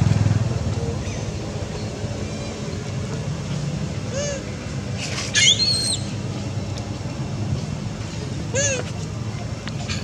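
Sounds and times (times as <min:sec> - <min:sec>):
vehicle engine drone: 0:00.0 - 0:10.0.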